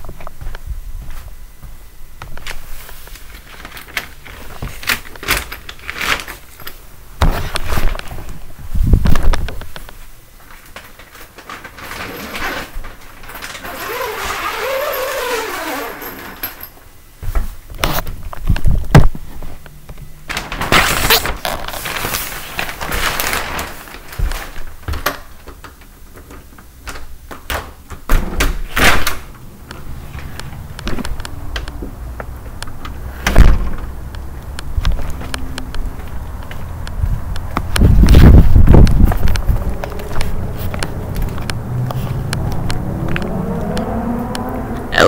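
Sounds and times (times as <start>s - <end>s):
brief rising and falling tone: 39.8s - 45.0s.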